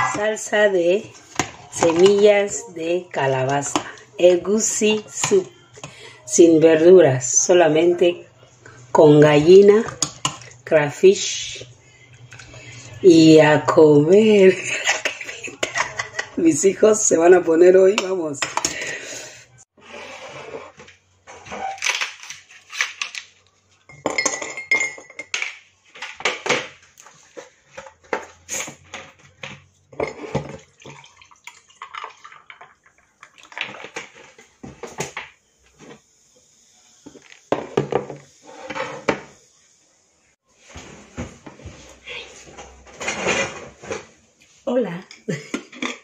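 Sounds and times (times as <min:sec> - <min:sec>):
glassware and dishes clinking: 0:23.9 - 0:25.5
drink pouring into mug: 0:30.4 - 0:34.3.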